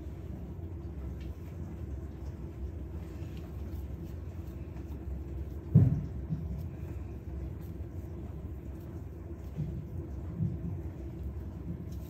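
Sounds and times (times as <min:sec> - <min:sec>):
hands working dough: 0:00.0 - 0:12.0
low steady rumble: 0:00.0 - 0:12.0
dull thump: 0:05.7 - 0:06.5.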